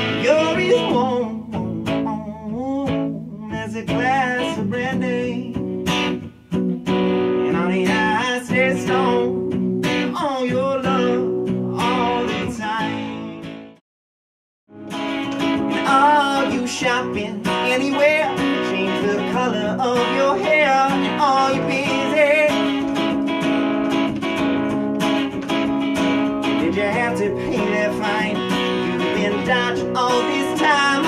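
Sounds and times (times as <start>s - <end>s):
man singing slow song: 0.0s - 5.7s, 7.4s - 9.4s, 10.0s - 13.4s, 15.7s - 22.9s, 26.5s - 31.0s
strummed acoustic guitar: 0.0s - 13.8s, 14.7s - 31.0s.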